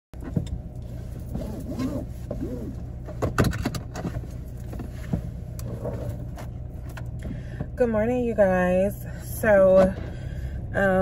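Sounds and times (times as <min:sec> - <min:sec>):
car engine hum: 0:00.2 - 0:11.0
knocks and clicks of handling: 0:03.0 - 0:05.6.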